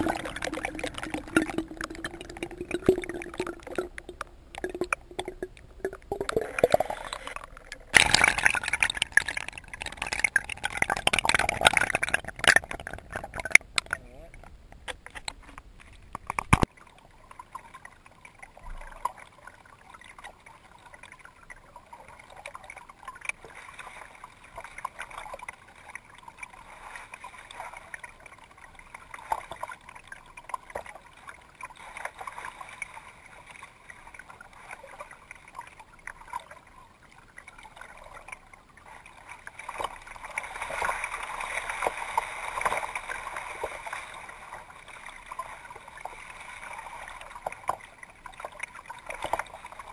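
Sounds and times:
water lapping around kayak: 0.0 - 49.9
paddle splashes: 22.0 - 49.9.

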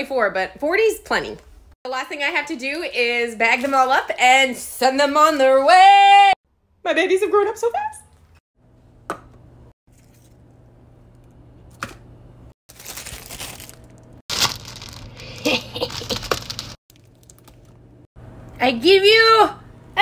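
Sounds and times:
cellophane bag crinkling: 12.7 - 17.8.

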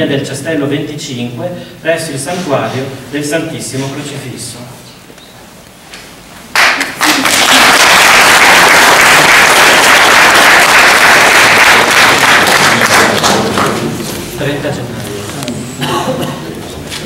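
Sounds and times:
audience clapping: 6.5 - 14.0.

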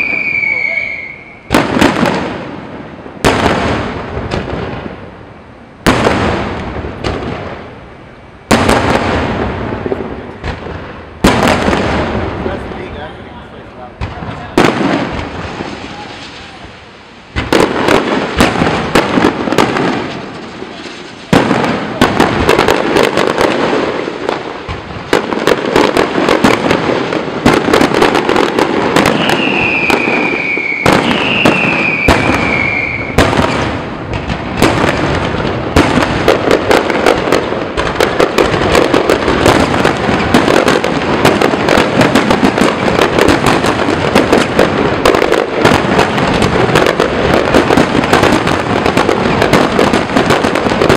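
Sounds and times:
falling firework whistles: 0.0 - 2.4, 15.0 - 22.7, 28.0 - 35.0
fireworks bursts and crackling: 0.0 - 50.9.

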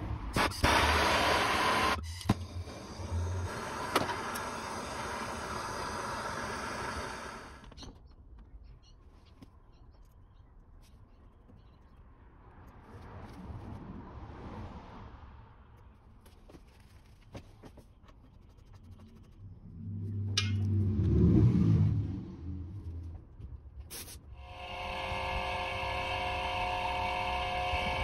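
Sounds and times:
gas torch hissing: 0.4 - 7.7.

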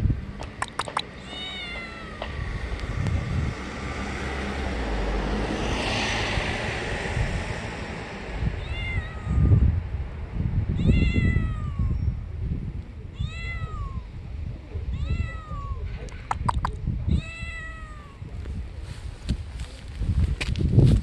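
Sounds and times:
sharp clicks: 0.4 - 1.1, 16.1 - 16.8
cat meowing: 1.2 - 2.4, 8.6 - 9.7, 10.8 - 12.0, 13.1 - 14.1, 14.9 - 15.9, 17.1 - 18.3.

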